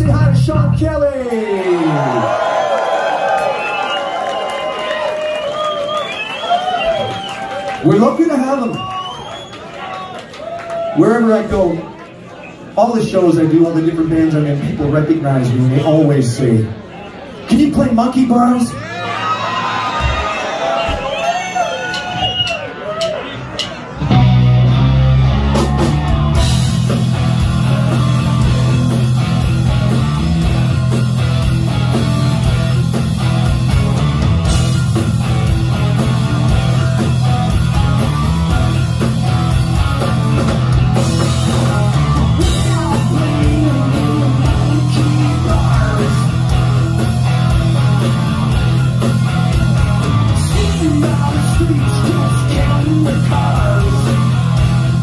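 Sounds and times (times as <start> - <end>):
live rock band playing: 0.0 - 2.4, 23.3 - 55.0
person singing: 41.4 - 46.9, 50.4 - 55.0.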